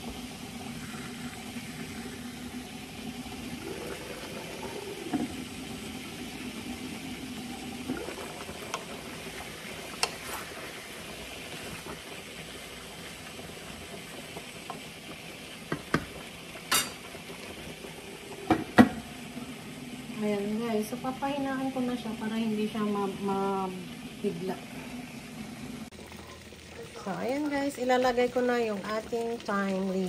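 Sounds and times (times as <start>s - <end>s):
stew bubbling in a pan: 0.0s - 30.0s
glass lid clinking on pan: 16.7s - 17.0s.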